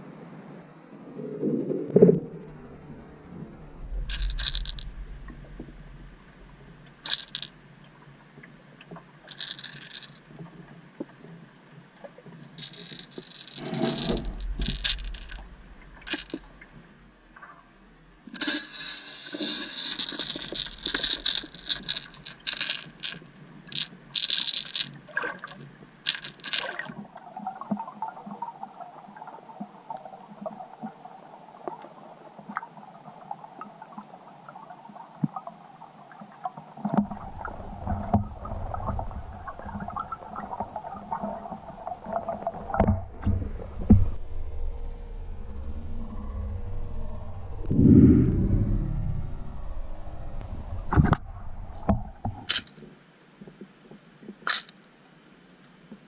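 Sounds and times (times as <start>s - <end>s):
muffled underwater rushing: 0.9s - 7.2s, 12.6s - 18.5s, 37.0s - 52.6s
low rumble: 1.0s - 7.1s, 13.6s - 18.2s, 37.1s - 52.6s.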